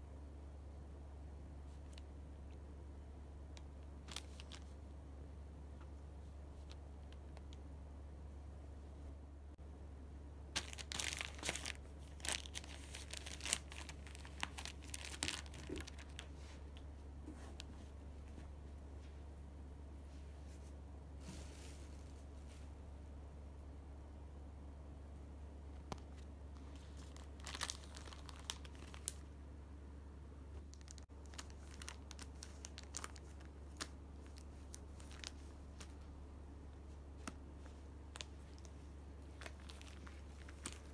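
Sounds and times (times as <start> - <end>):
steady low hum: 0.0 - 40.9
packaging crinkling and crackling: 4.0 - 4.8, 10.6 - 16.5, 25.9 - 29.3, 30.6 - 36.1, 37.2 - 40.9.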